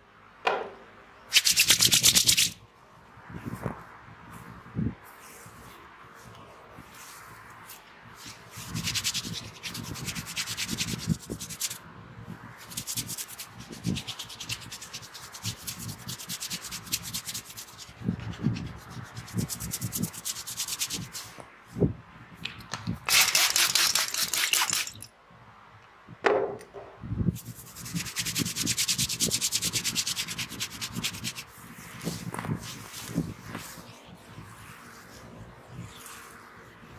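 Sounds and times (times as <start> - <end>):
fingers rubbing through oiled hair: 1.3 - 2.6, 5.1 - 11.8, 12.6 - 21.4, 27.3 - 36.9.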